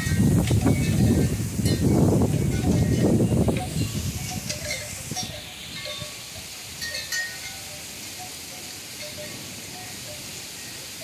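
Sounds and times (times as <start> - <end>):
heavy rain: 0.0 - 5.2.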